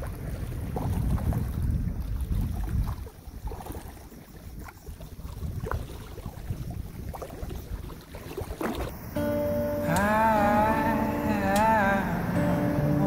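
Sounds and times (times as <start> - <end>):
wind rumbling on microphone: 0.0 - 9.0.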